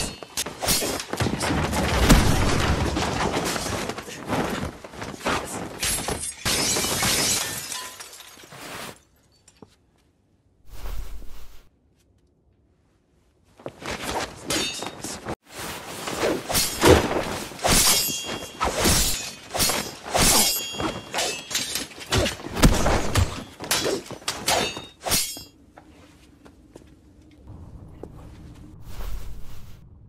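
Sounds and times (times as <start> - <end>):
metal blades clashing: 0.0 - 1.4, 14.4 - 15.3, 16.5 - 25.5.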